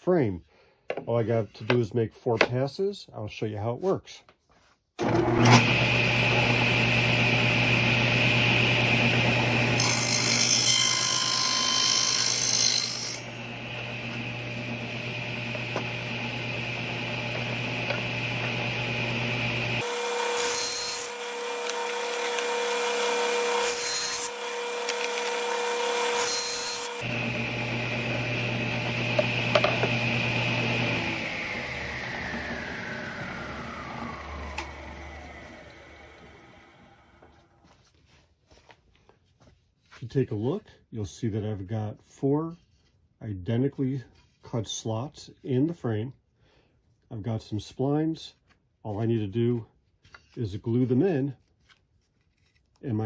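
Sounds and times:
saw blade cutting wood: 0:05.0 - 0:37.0
saw blade spinning down: 0:05.0 - 0:37.3
table saw motor and blade whine: 0:05.0 - 0:37.4.

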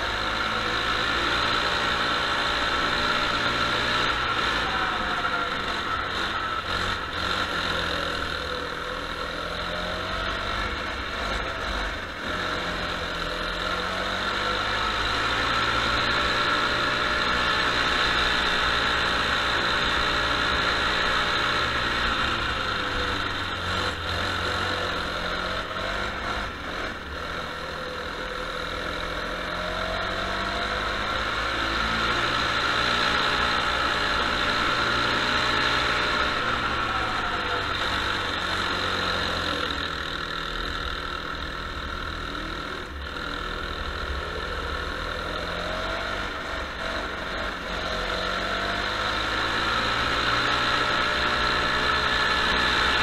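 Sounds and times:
go-kart engine revving: 0:00.0 - 0:53.0.

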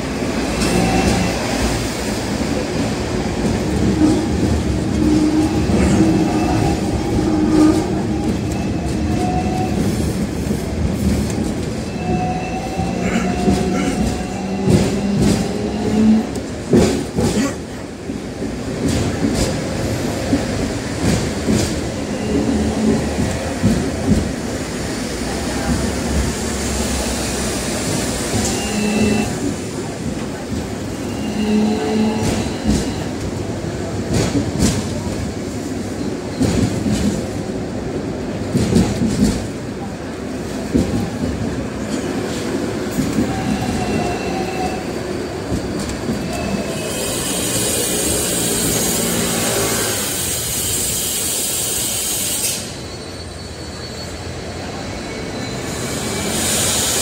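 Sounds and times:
tram rumbling on rails: 0:00.0 - 0:57.0
hiss: 0:47.0 - 0:52.8, 0:55.8 - 0:57.0.

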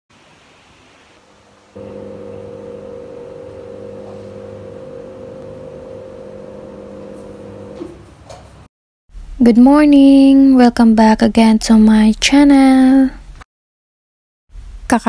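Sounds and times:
roller shutter motor humming: 0:01.8 - 0:08.1.

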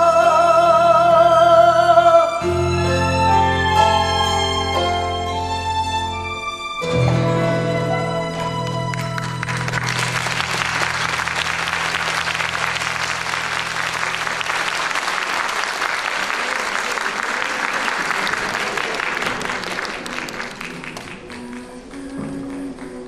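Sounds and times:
audience applauding: 0:07.8 - 0:23.0.

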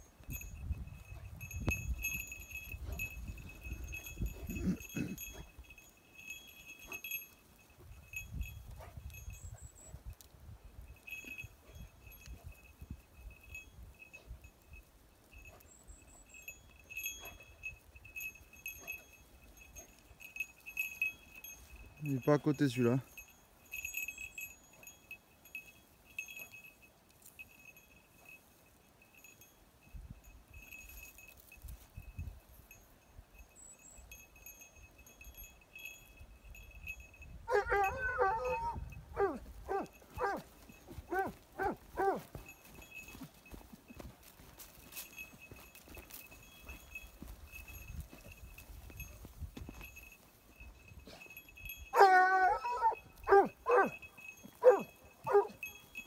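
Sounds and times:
dog collar bell jingling: 0:00.0 - 0:56.0
dog yelping: 0:37.5 - 0:40.5, 0:41.1 - 0:42.3, 0:51.9 - 0:54.0, 0:54.6 - 0:55.6
dog baying: 0:37.5 - 0:42.4, 0:51.9 - 0:54.0, 0:54.6 - 0:55.7.

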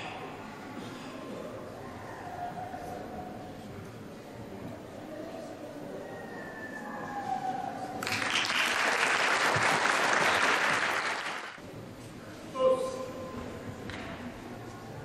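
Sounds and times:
audience applauding: 0:08.0 - 0:11.6.

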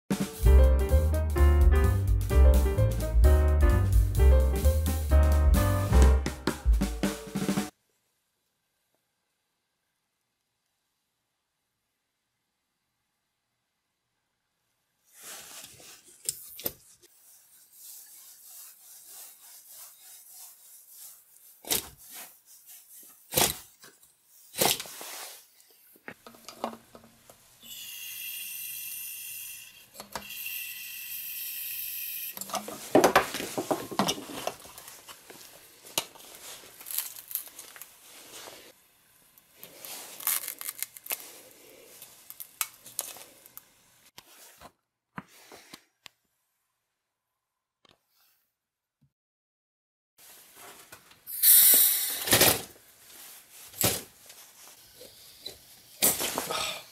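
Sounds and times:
gas can hissing and whistling: 0:27.6 - 0:32.5, 0:51.3 - 0:52.4.

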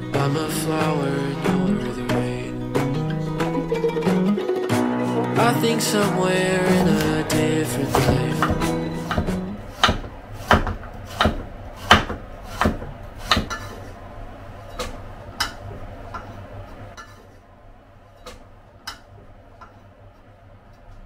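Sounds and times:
knife hitting cutting board: 0:06.7 - 0:13.7.

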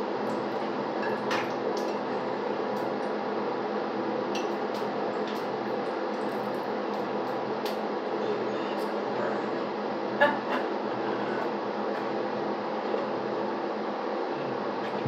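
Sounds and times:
frying in hot oil: 0:00.0 - 0:09.1.

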